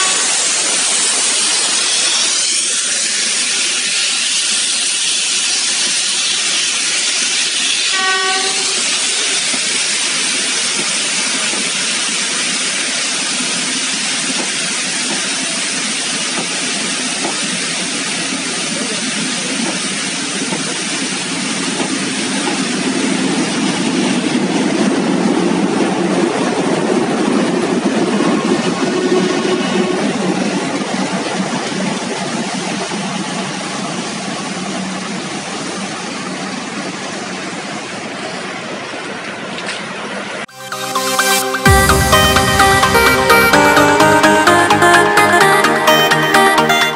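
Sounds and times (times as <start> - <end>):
train whistle blast: 0.0 - 6.7, 7.4 - 9.6
steam locomotive hiss: 0.0 - 25.1
diesel locomotive engine: 0.0 - 46.9
rail noise: 0.0 - 46.9.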